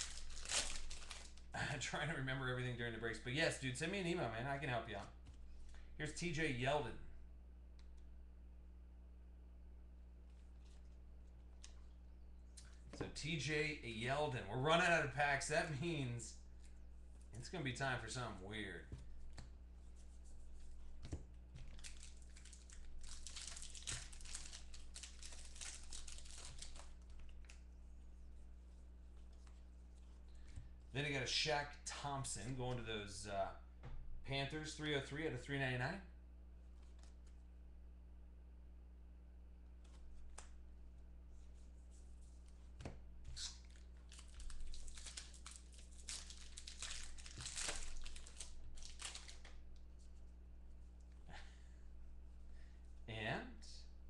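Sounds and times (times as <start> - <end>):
foil wrapper tearing and crinkling: 0.0 - 1.5, 21.6 - 27.6, 43.4 - 49.6.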